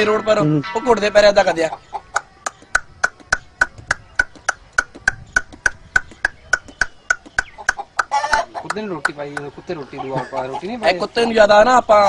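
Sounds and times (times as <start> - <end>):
man clicking tongue: 2.2 - 8.8.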